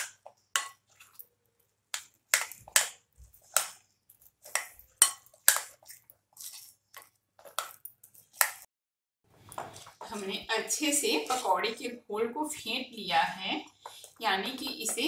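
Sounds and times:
spoon beating batter in glass bowl: 0.0 - 8.7, 13.2 - 15.0.

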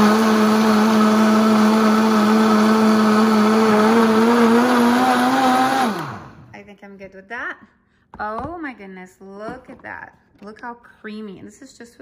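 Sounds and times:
blender motor whining: 0.0 - 6.5.

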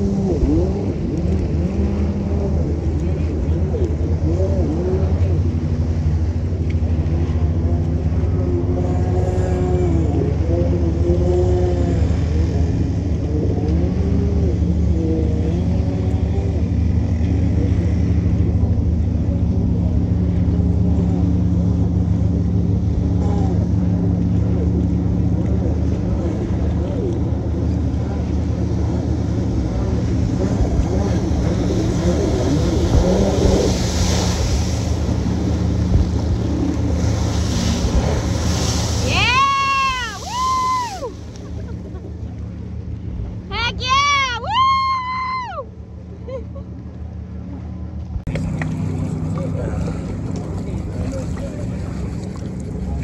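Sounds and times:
distant jet ski engine revving: 0.0 - 53.0
idling engine drone: 0.0 - 53.0.

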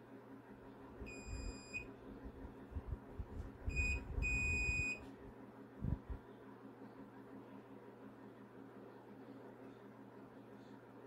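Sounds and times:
multimeter beeps: 1.1 - 1.9, 3.7 - 5.0.

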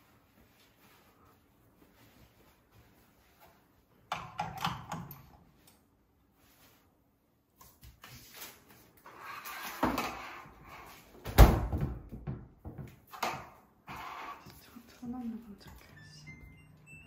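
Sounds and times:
cabinet door thumping shut: 11.3 - 12.4.

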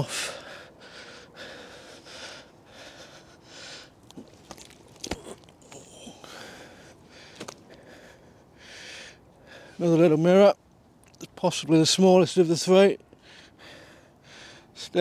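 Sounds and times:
close breathing: 0.0 - 9.9, 13.1 - 14.8
rustling: 4.0 - 6.1
fish thrashing: 4.0 - 6.5.

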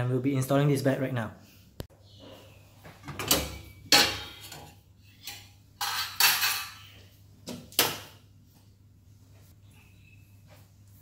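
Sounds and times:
metal burner plates clanking: 3.0 - 7.0.

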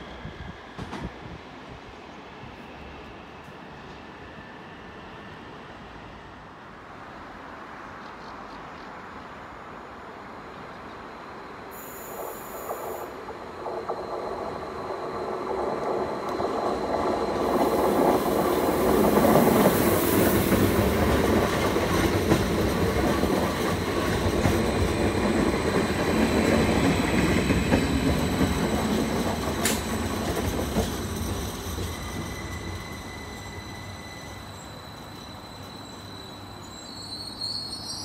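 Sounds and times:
train wheels rumbling on rails: 0.0 - 4.7, 11.7 - 36.8.

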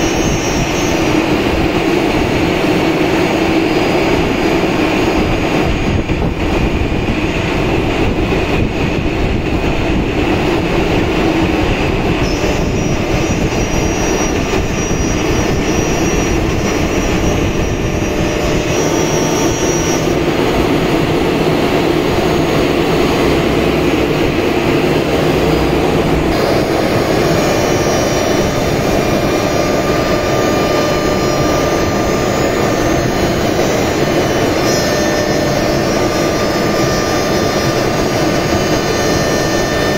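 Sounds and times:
router cutting board: 12.2 - 20.6, 25.1 - 39.9.

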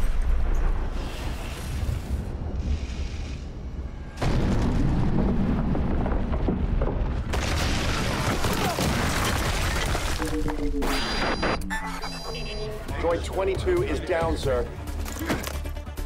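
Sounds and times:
explosion blast and rumbling roar: 0.0 - 10.3
crashing crackling debris: 4.0 - 11.4.

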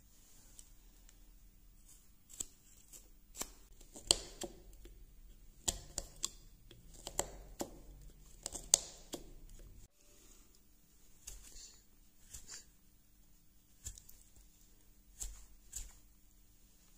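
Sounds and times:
knife carving wood: 1.8 - 9.9, 11.1 - 12.8, 13.7 - 16.1.

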